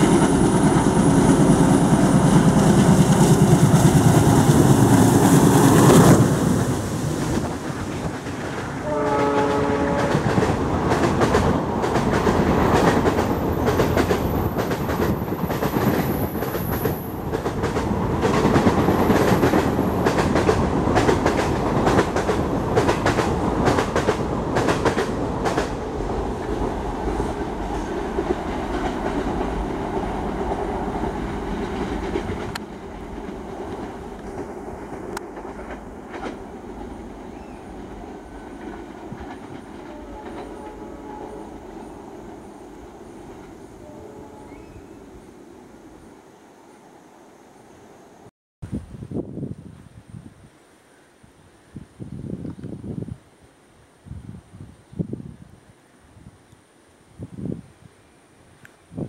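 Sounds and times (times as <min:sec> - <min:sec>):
train wheels clattering on rails: 0:00.0 - 0:41.6
diesel locomotive engine: 0:00.0 - 0:46.4
train horn: 0:08.8 - 0:10.5, 0:39.8 - 0:41.9, 0:43.7 - 0:45.0.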